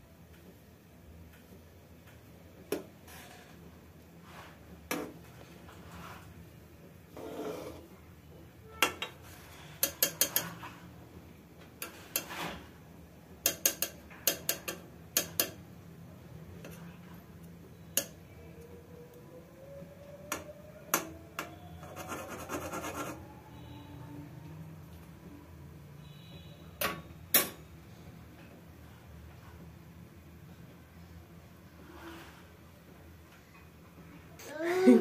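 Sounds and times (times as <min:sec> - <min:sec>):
metal spoon scraping a pan: 0:08.8 - 0:10.9, 0:11.8 - 0:12.7.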